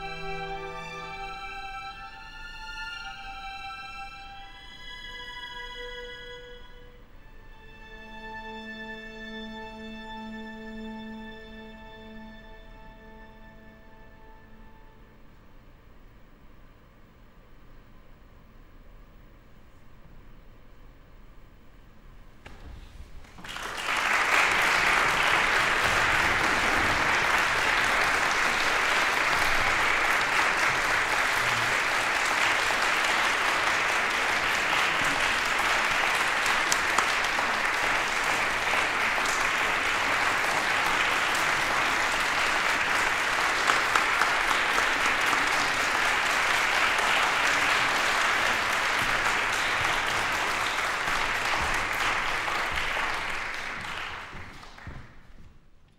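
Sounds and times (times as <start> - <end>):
audience applauding: 23.2 - 55.3.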